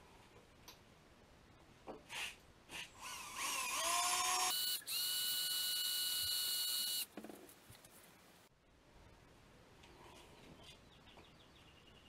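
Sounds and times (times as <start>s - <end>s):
electric drill whining: 3.0s - 7.1s.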